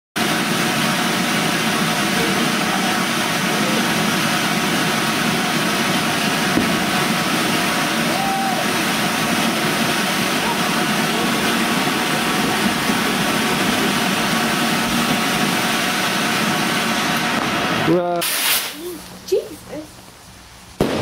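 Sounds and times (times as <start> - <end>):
firework fountain hissing: 0.2 - 21.0.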